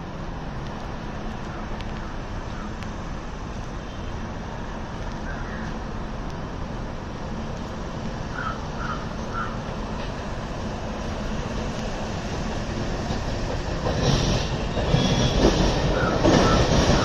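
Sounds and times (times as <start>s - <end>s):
electric train rumbling: 0.0s - 17.0s
traffic noise: 0.0s - 17.0s
crow cawing faintly: 8.3s - 9.7s.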